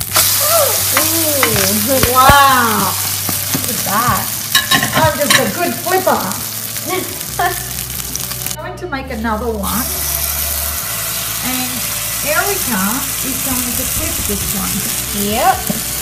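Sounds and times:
pancake sizzling in oil: 0.0s - 8.6s, 9.7s - 16.0s
spatulas tapping on pan: 0.9s - 5.7s.

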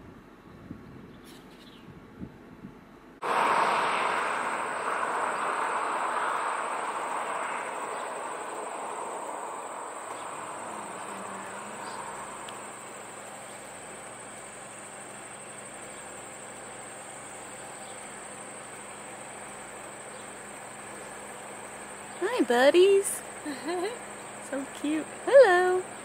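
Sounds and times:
broad rushing noise: 3.2s - 26.0s
high-pitched insect buzz: 3.6s - 18.8s.

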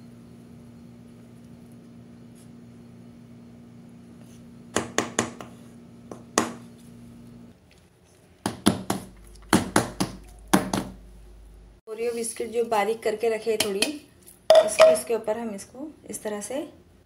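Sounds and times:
steady low hum: 8.4s - 11.8s
wooden spoon knocking on steel ring: 14.5s - 15.0s.

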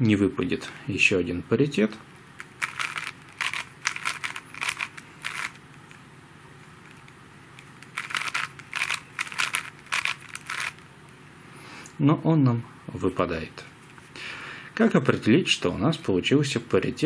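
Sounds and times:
puzzle cube layers clacking: 2.4s - 5.6s, 7.8s - 10.8s.

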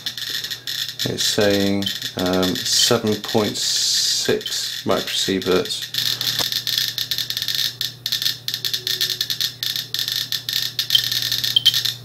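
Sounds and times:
geiger counter clicking rapidly: 5.9s - 12.0s.

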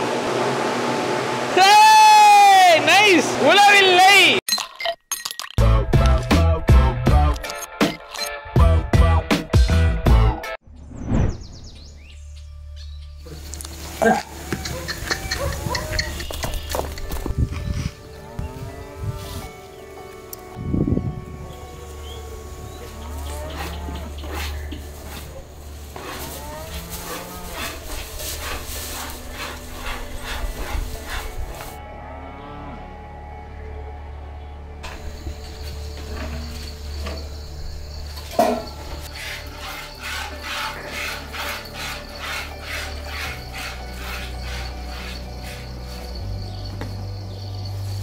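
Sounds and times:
cattle mooing: 21.3s - 24.8s, 26.0s - 28.1s, 31.8s - 34.4s.

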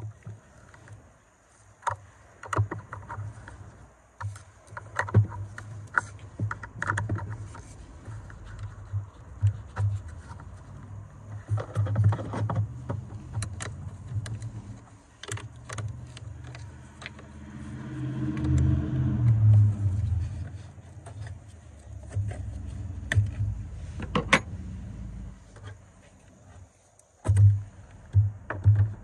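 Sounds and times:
low rumble: 15.8s - 26.0s.

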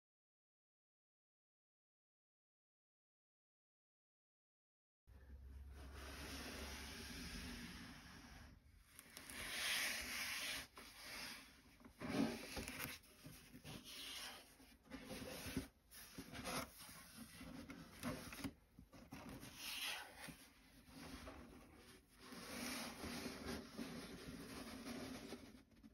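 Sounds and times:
gloved hands rubbing cardboard: 9.2s - 17.4s.

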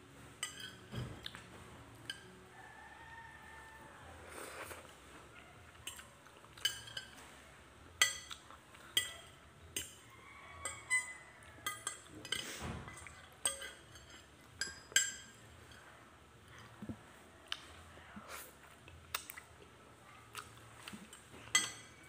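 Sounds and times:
cutlery clinking on a plate: 0.4s - 1.4s, 5.9s - 7.3s, 8.0s - 15.9s, 21.0s - 22.0s.

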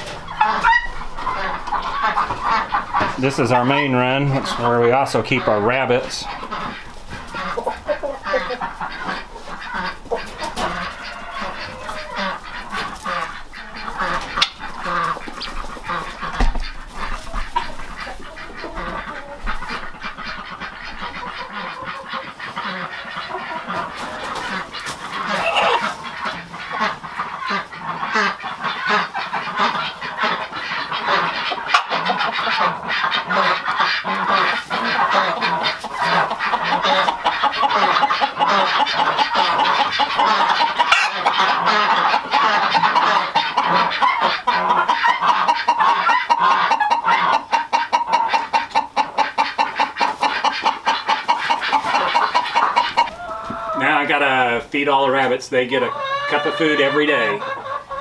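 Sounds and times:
chickens clucking: 0.0s - 58.0s.

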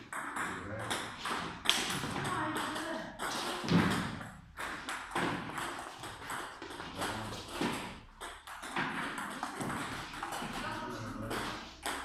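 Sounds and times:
ping pong ball tapping: 7.6s - 12.0s.

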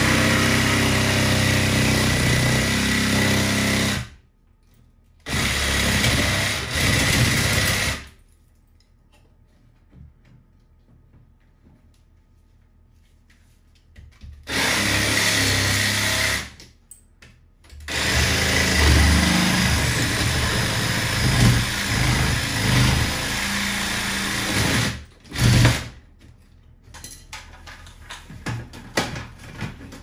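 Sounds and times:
power tool cutting tile: 0.0s - 4.1s, 5.3s - 8.1s, 14.5s - 16.6s, 17.9s - 26.0s.

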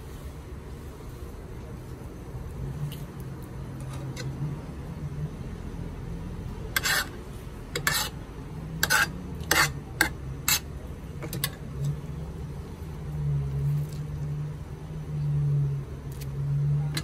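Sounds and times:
metal spoon scraping metal tray: 6.7s - 8.2s, 8.8s - 11.9s.

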